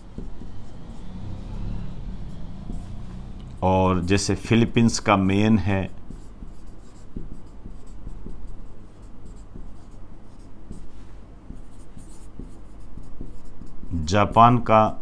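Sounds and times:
marker squeaking on whiteboard: 0.0 - 1.0, 5.9 - 10.9, 11.5 - 14.0.

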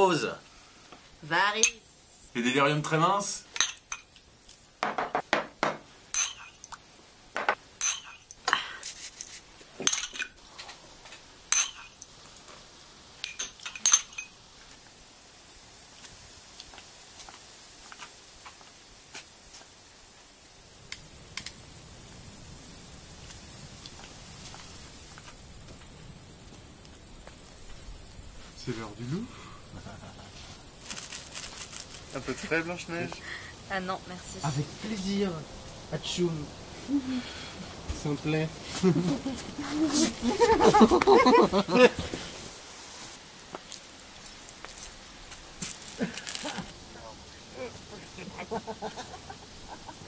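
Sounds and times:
crickets chirring: 0.0 - 50.0
tableware and glass clinking: 3.5 - 4.1, 4.8 - 6.6, 7.4 - 8.2, 9.8 - 10.4, 11.5 - 12.0, 13.2 - 14.4.

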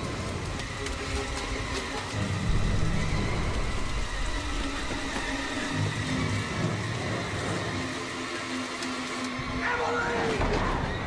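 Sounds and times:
heavy rain hiss: 0.0 - 10.2
deep rumble: 2.1 - 7.8.

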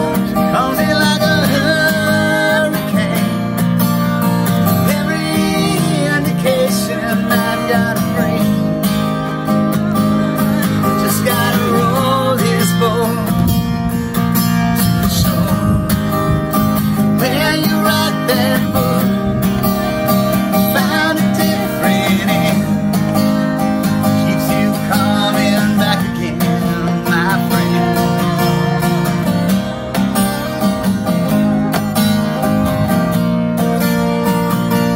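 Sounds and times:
acoustic guitar strumming: 0.0 - 34.9
man and woman singing: 10.9 - 13.3.

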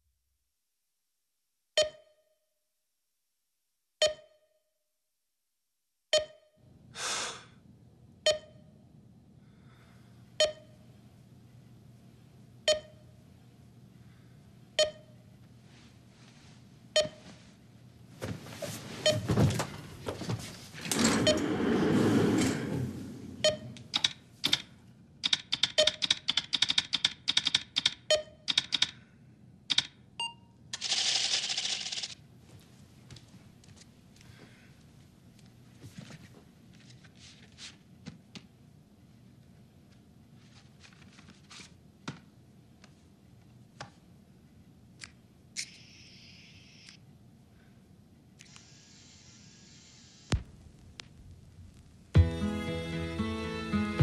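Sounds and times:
electronic alarm beeping: 23.4 - 23.8
rapid typing on keyboard: 23.9 - 29.0, 29.7 - 29.9, 30.8 - 32.2
low steady hum: 50.2 - 52.2.

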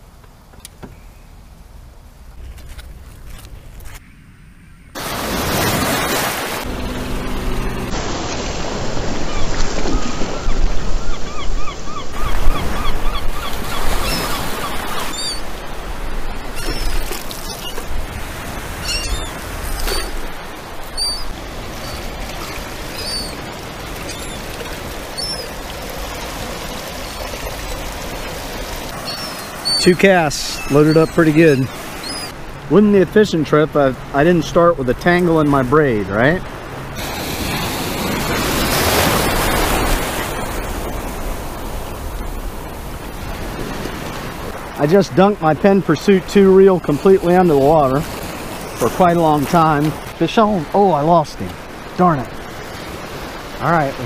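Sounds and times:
water splashing and pouring: 5.0 - 10.4, 13.5 - 32.1, 37.0 - 44.9
surf washing on sandy beach: 5.0 - 54.0
short high bird calls: 10.4 - 15.4, 18.8 - 20.2, 20.9 - 22.1, 22.9 - 23.4, 25.2 - 25.5, 29.0 - 32.4.

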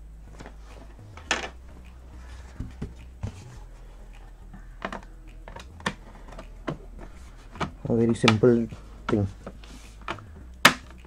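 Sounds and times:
low steady hum: 0.0 - 11.0
laptop cover clicks and taps: 10.1 - 11.0.

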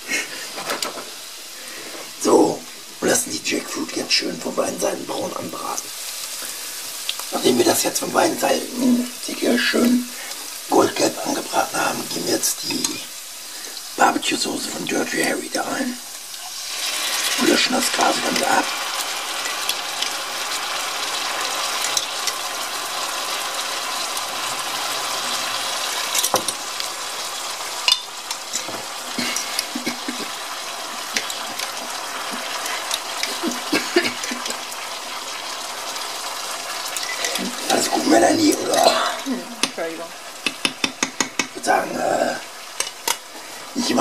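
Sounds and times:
food sizzling in hot oil: 0.0 - 44.0
sauce poured into pan: 16.1 - 38.0.

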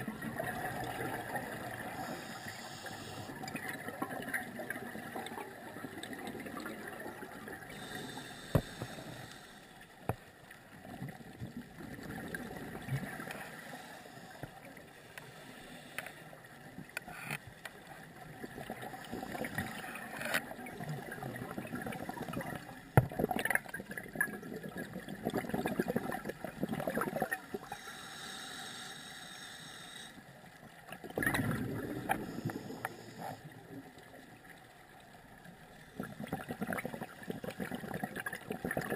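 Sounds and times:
hissing regulator inhalations: 1.8 - 3.4, 7.7 - 9.8, 27.6 - 30.3, 32.0 - 33.5
bubbling gurgling exhalations: 23.2 - 27.7, 31.0 - 33.8, 36.0 - 38.9.

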